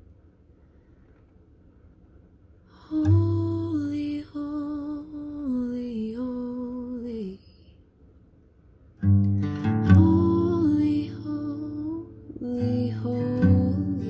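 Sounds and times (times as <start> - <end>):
woman singing: 2.7 - 7.7, 9.8 - 14.0
acoustic guitar strumming: 9.0 - 14.0.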